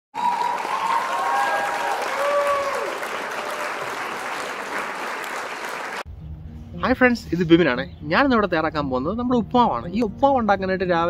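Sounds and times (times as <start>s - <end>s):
crowd cheering: 0.1s - 6.0s
crowd applause: 0.1s - 6.1s.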